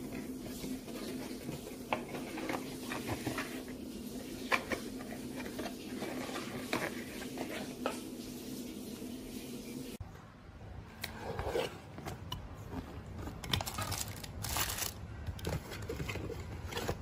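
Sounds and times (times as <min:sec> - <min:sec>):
cardboard box being handled: 0:00.0 - 0:03.7, 0:11.3 - 0:17.0
low background hum: 0:00.0 - 0:17.0.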